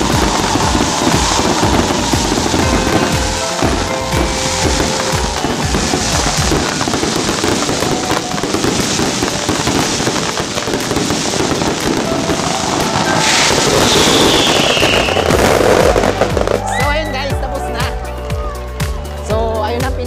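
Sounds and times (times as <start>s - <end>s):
falling firework whistle: 0.0s - 17.1s
fireworks crackling and popping: 0.0s - 19.2s.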